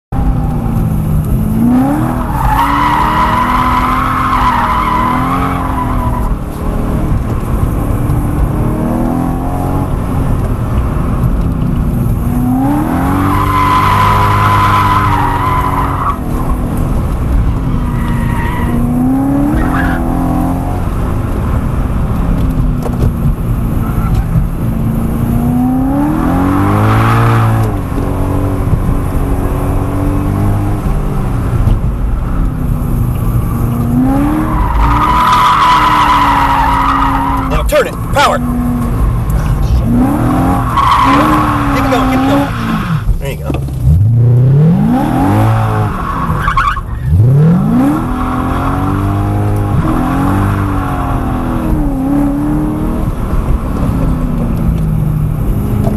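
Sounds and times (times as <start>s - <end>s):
car engine revving: 0.2s - 55.9s
tyres squealing: 39.6s - 43.6s.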